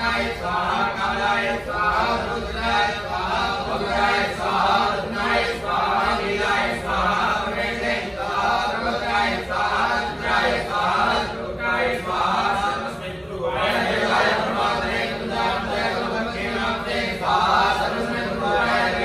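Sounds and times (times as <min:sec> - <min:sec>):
men chanting mantras: 0:00.0 - 0:19.0.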